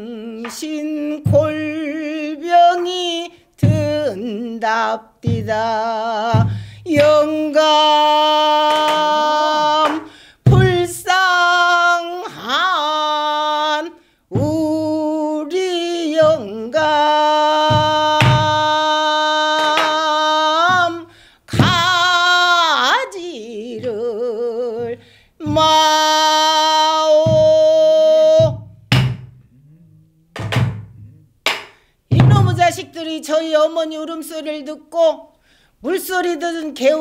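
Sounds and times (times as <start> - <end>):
woman singing with vibrato: 0.0 - 31.4, 32.1 - 37.0
drum strokes thudding: 10.5 - 11.0, 17.6 - 18.7, 20.6 - 22.0, 24.8 - 26.0, 27.1 - 29.4, 30.4 - 31.2, 32.1 - 32.8.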